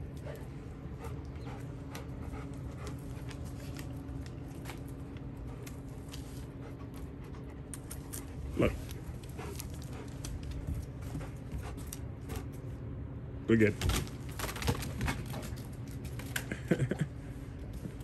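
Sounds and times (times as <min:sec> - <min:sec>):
dog panting: 0:00.0 - 0:12.6.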